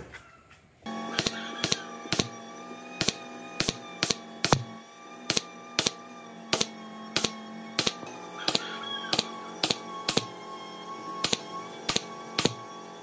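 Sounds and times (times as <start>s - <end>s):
soft background music: 1.2s - 13.0s
sharp taps: 3.0s - 4.7s, 5.3s - 6.0s.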